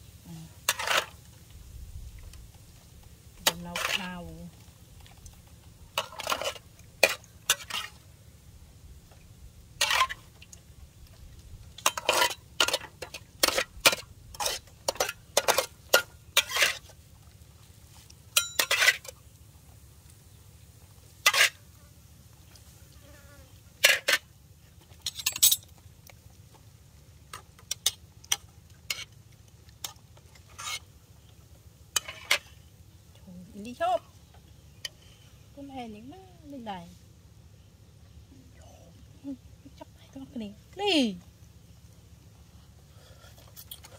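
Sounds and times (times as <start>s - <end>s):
metal ladle scraping a pot: 0.6s - 1.2s, 6.0s - 8.1s, 9.8s - 10.3s, 11.8s - 16.9s, 18.4s - 19.1s, 21.2s - 21.6s, 30.4s - 31.0s, 32.0s - 32.6s.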